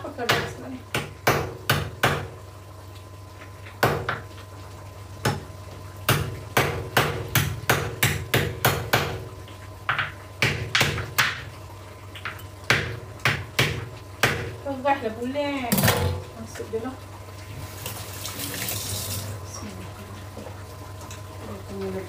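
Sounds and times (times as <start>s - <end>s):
hard knocks of kitchen work: 0.0s - 2.4s, 3.6s - 4.3s, 5.2s - 11.5s, 12.2s - 14.6s, 15.7s - 16.3s.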